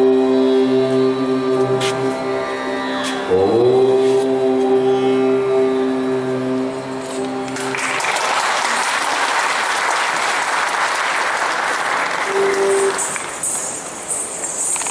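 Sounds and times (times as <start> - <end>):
audience applause: 7.5 - 13.4.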